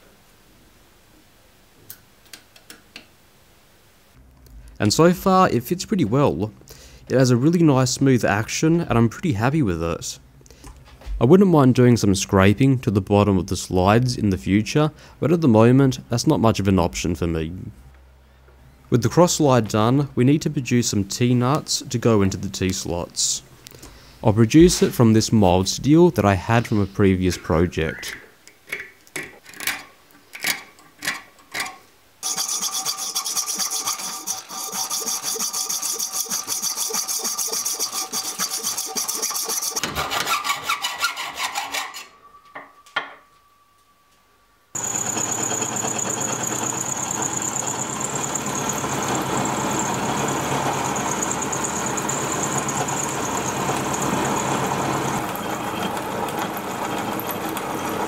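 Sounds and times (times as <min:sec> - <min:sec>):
scriber scratching steel: 0:30.4 - 0:42.4
saw rasping through steel: 0:32.2 - 0:42.2
milling machine whine: 0:44.8 - 0:58.0.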